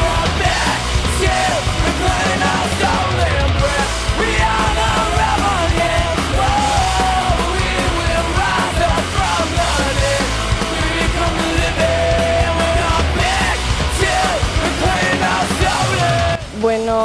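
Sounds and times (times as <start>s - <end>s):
rock music with shouted singing: 0.0s - 17.0s
steady drum beat: 0.0s - 17.0s.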